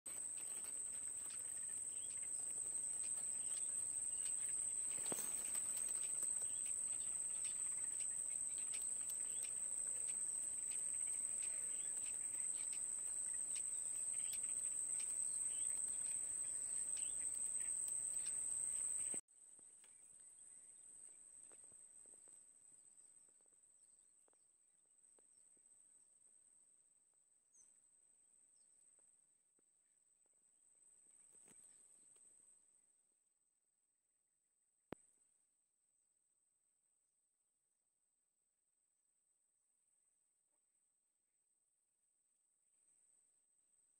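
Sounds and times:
faint ticks: 0.1 - 19.2
high-pitched insect drone: 0.2 - 19.2.

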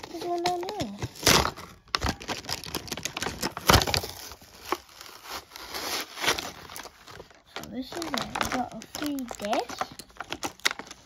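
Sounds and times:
plastic packaging crinkling: 0.0 - 11.0
sharp plastic snaps: 7.5 - 11.0.

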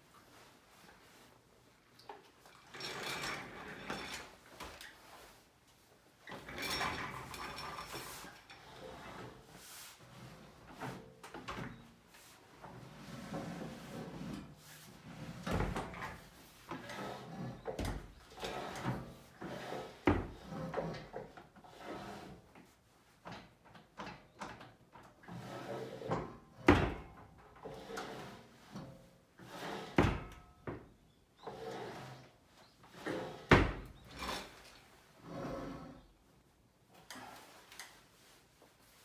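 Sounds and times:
desk surface sliding and rubbing: 6.4 - 11.1, 12.1 - 17.6, 27.8 - 28.7, 29.4 - 30.0, 32.9 - 34.6, 35.2 - 36.0.

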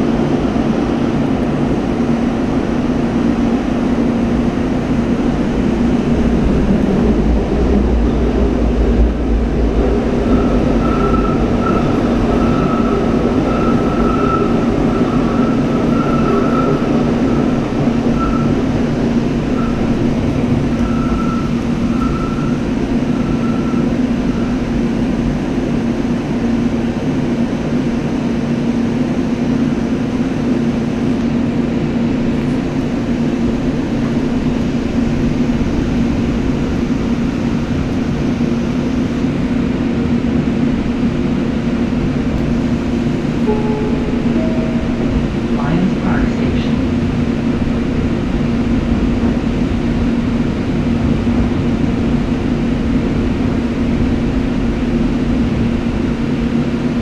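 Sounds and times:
train wheels rumbling on rails: 0.0 - 57.0
faint high wheel squeal: 10.3 - 18.6, 20.7 - 24.6.

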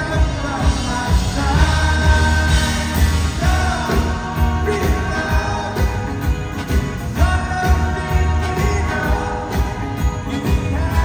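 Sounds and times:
man singing: 0.0 - 11.0
rock band playing: 0.0 - 11.0.

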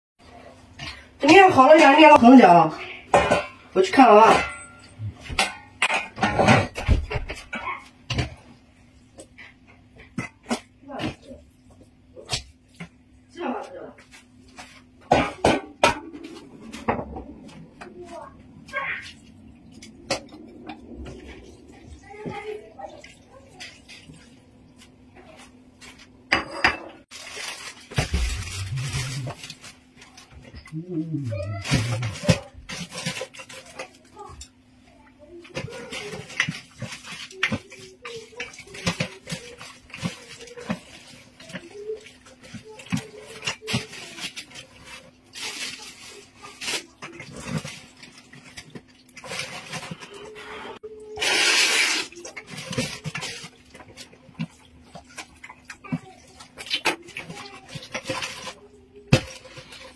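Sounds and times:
pot clattering and rustling: 0.2 - 59.9
metal cookware clanking: 2.8 - 8.2.

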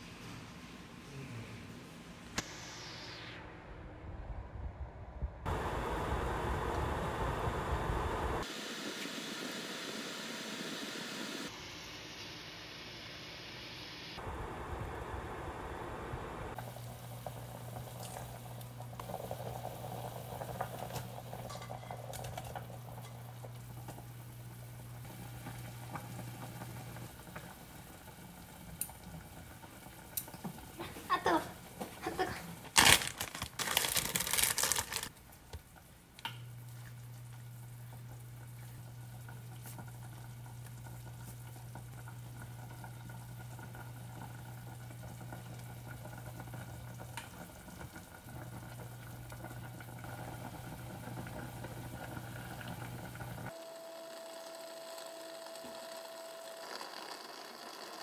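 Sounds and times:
steady low hum: 0.0 - 8.5
water boiling in pot: 5.4 - 10.7, 11.5 - 58.0
metal tongs clattering on pot: 21.5 - 22.5.

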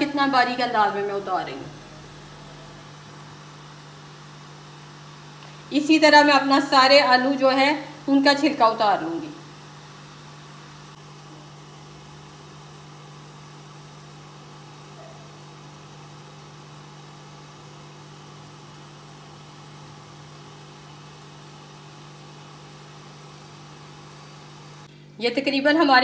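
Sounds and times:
low hum: 0.0 - 4.0.

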